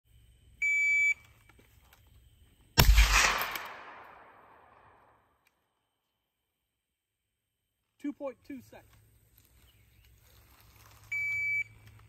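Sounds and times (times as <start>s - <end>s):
rifle shot with echo: 2.8s - 5.2s.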